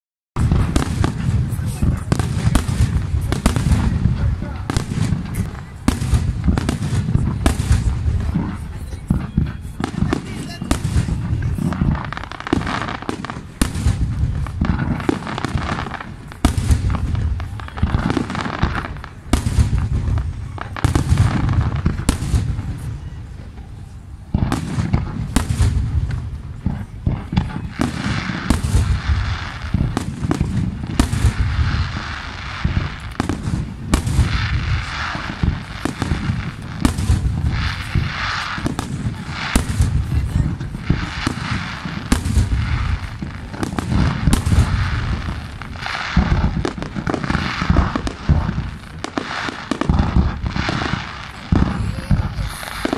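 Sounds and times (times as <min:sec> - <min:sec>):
firework shells bursting: 0:24.3 - 0:52.9.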